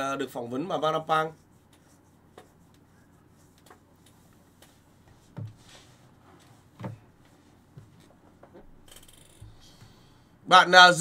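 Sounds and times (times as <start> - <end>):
soft thumps: 5.0 - 8.8.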